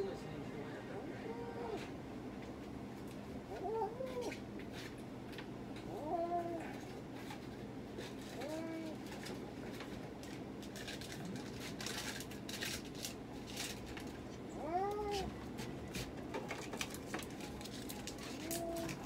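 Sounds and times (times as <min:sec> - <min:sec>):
handling clicks and rustles: 0:04.1 - 0:19.0
cat meowing: 0:05.9 - 0:06.8, 0:14.5 - 0:15.3.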